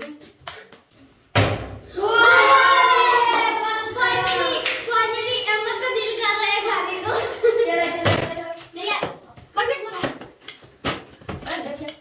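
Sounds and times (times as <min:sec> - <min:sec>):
sudden thump: 0:01.3 - 0:01.8
children shouting and cheering: 0:01.8 - 0:09.0.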